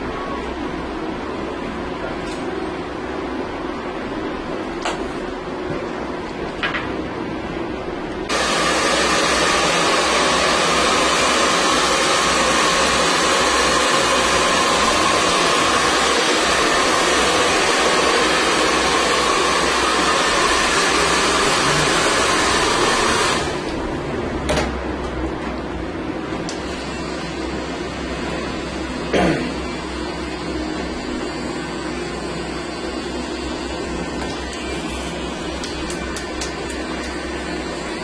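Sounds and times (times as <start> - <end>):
hair dryer blowing: 8.3 - 23.9, 26.5 - 38.0.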